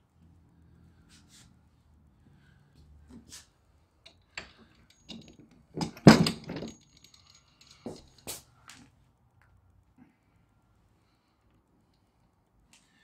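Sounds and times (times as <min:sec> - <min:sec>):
metal roller frame clattering: 0:04.4 - 0:08.2.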